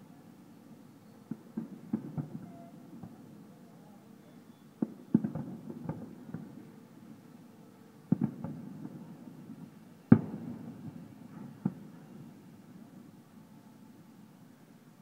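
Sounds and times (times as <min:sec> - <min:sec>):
distant firework bangs: 0:01.3 - 0:03.3, 0:04.8 - 0:06.7, 0:08.1 - 0:12.4.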